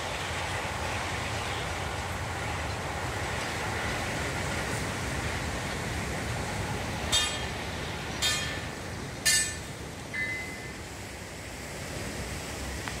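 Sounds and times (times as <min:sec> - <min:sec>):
sea surf: 0:00.0 - 0:13.0
wind: 0:00.0 - 0:13.0
thin high tone: 0:10.1 - 0:10.8.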